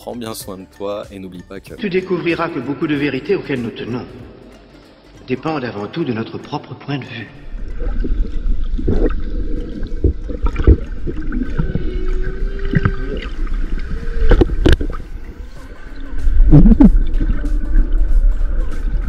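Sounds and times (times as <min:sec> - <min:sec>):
long gliding tone: 0:07.3 - 0:19.0
watery gurgling: 0:07.3 - 0:19.0
deep rumble: 0:07.4 - 0:19.0.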